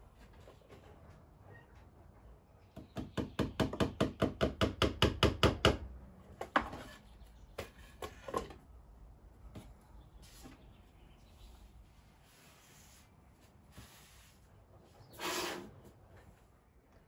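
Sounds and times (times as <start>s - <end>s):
hammer knocking nail into wall: 2.8s - 5.8s.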